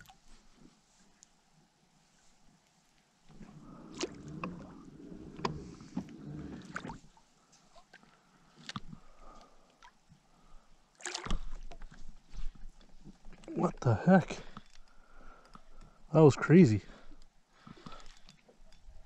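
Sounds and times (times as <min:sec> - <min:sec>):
water sloshing against kayak hull: 0:03.3 - 0:13.5.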